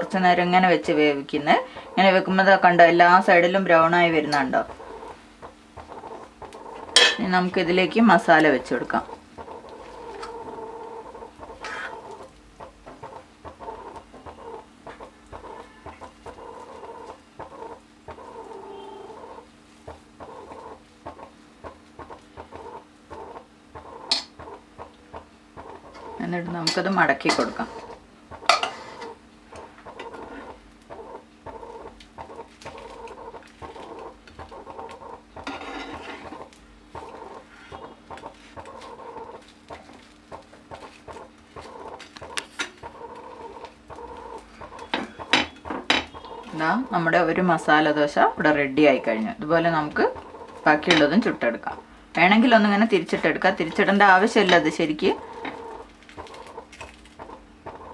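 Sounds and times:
clucking sounds: 0:00.0 - 0:57.9
steady low hum: 0:00.0 - 0:57.9
spoon tapping and scraping griddle: 0:06.8 - 0:07.6, 0:28.4 - 0:29.0, 0:35.4 - 0:36.3, 0:44.5 - 0:46.2.

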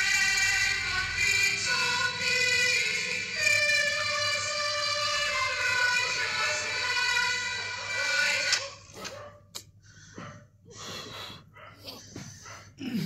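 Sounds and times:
breathy noises: 0:08.9 - 0:13.0.

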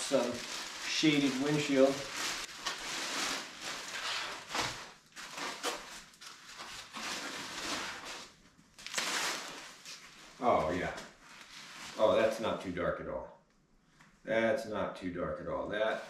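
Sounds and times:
plastic packaging rustling: 0:00.0 - 0:12.4.

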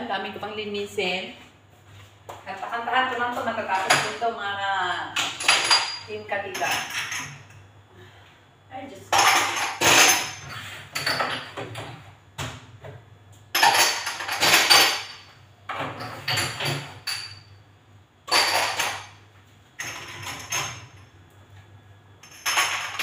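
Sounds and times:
dishes and glassware clattering: 0:05.2 - 0:07.6, 0:09.1 - 0:12.0, 0:13.5 - 0:17.5, 0:18.3 - 0:19.2, 0:19.8 - 0:21.0, 0:22.2 - 0:23.0.

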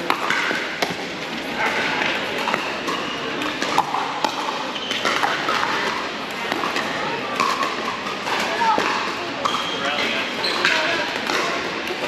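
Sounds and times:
ball bouncing on court: 0:00.0 - 0:12.0
players chatting: 0:01.2 - 0:12.0
paddles striking plastic ball: 0:06.5 - 0:09.6.

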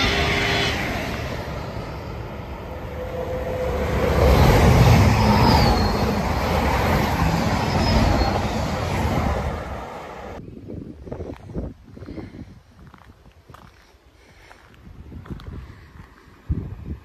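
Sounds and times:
passenger train passing: 0:00.0 - 0:10.4.

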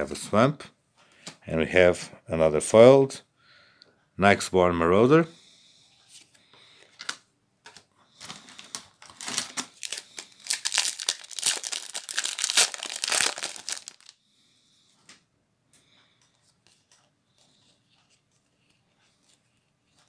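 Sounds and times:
foil wrapper crinkling: 0:08.2 - 0:14.1.

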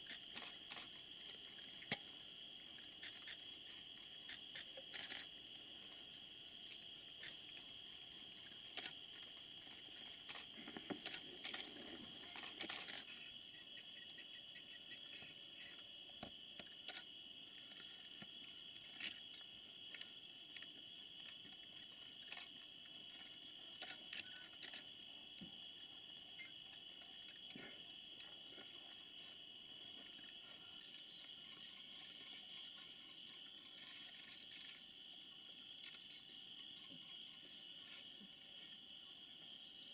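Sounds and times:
night insect chorus trilling: 0:00.0 - 0:39.9.

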